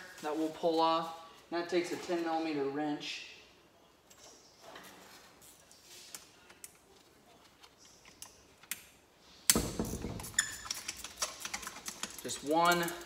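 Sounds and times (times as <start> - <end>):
rapid ratcheting clatter: 10.1 - 13.0.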